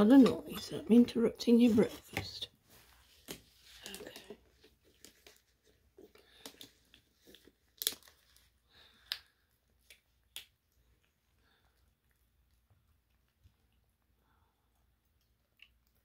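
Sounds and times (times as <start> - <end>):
kitten chewing food: 4.6 - 16.0.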